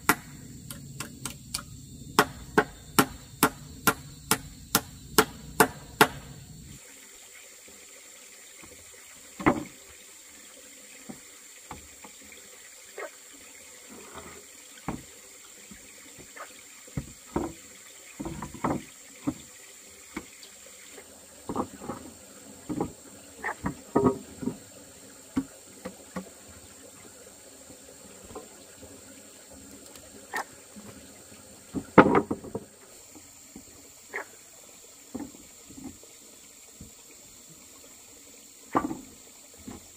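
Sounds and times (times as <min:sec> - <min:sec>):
chopping strokes: 0:02.2 - 0:06.4
knocks: 0:02.2 - 0:06.4.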